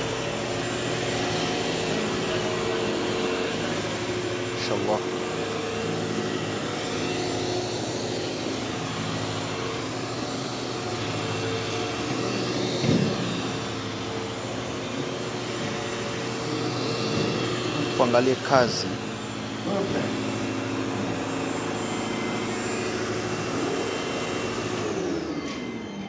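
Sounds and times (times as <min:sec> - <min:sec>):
vacuum cleaner running: 0:00.0 - 0:26.0
vacuum cleaner bump: 0:12.2 - 0:14.3.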